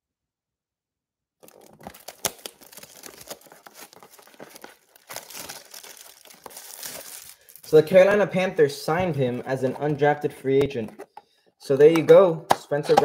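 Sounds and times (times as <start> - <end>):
plastic shrink-wrap crinkling: 1.4 - 7.8.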